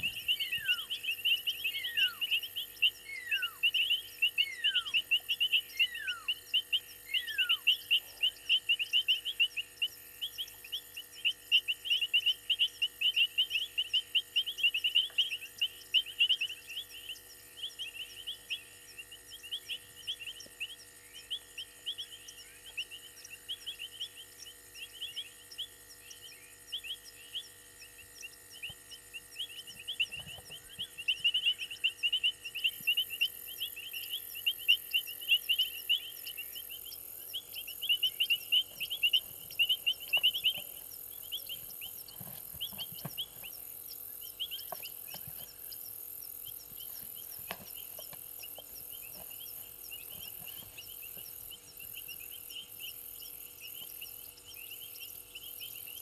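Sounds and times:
rapid high chirps: 28.3s - 56.0s.

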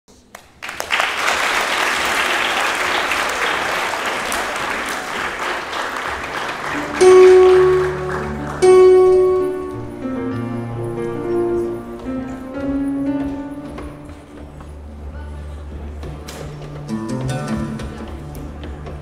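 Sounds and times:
audience applauding: 0.2s - 10.0s
electronic keyboard sustained notes: 6.5s - 15.3s.

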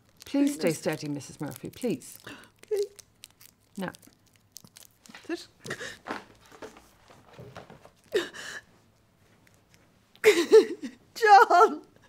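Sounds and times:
woman gasping and whimpering: 8.1s - 8.7s.

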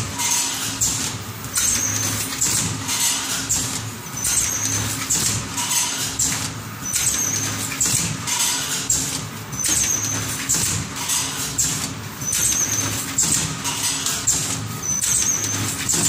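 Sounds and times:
bagging machine hissing and clacking: 0.0s - 16.0s
machine high squeal: 1.6s - 2.3s, 4.2s - 5.0s, 6.8s - 7.6s, 9.6s - 10.4s, 12.2s - 13.1s, 14.8s - 16.0s.

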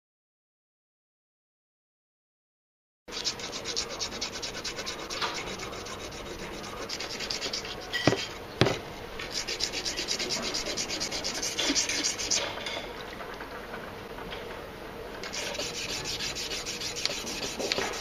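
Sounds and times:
blade rasping on whetstone: 3.1s - 12.5s, 15.2s - 18.0s
sharp knocks: 8.0s - 8.9s.

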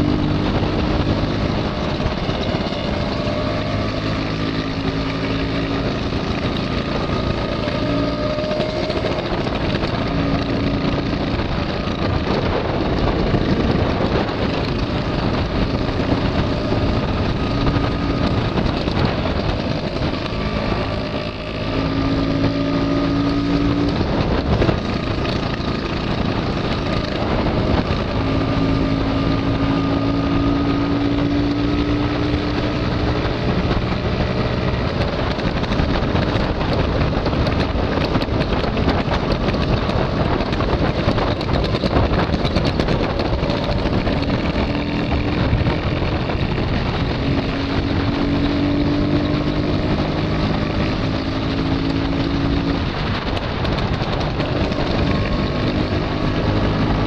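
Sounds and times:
scooter engines running: 0.0s - 57.0s
wind noise on microphone: 0.0s - 57.0s.

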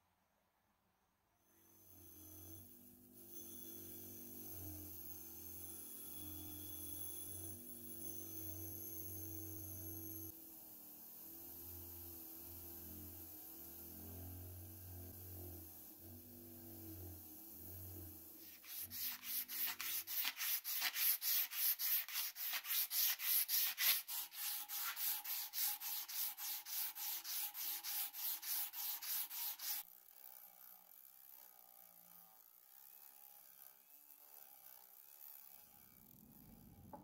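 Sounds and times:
bench grinder motor hum: 1.6s - 37.0s
abrasive strip rasping on metal: 16.8s - 29.8s.

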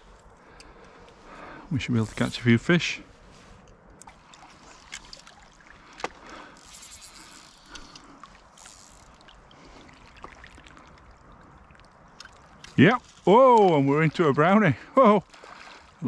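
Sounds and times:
river water trickling and lapping: 0.0s - 16.0s
small ticks: 6.0s - 9.4s.

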